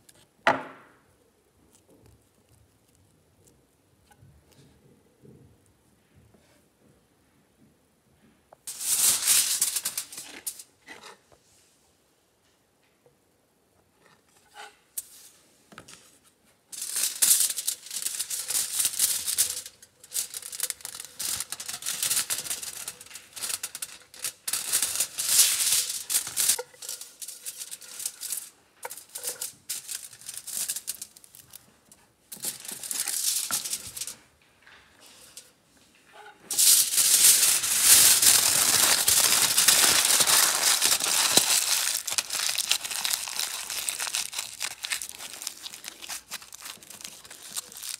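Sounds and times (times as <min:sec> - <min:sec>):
aluminium foil crinkling: 0:08.7 - 0:10.7, 0:16.7 - 0:34.2, 0:36.5 - 0:47.9.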